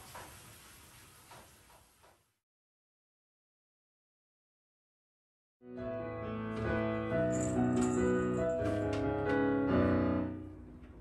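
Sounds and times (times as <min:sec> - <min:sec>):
piano tune: 0:05.6 - 0:11.0.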